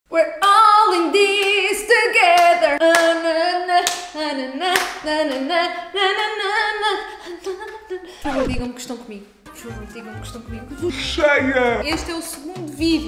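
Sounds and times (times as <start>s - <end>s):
woman singing unaccompanied: 0.1s - 11.2s, 11.8s - 13.0s
sharp hand claps: 4.7s - 5.5s, 11.7s - 12.8s.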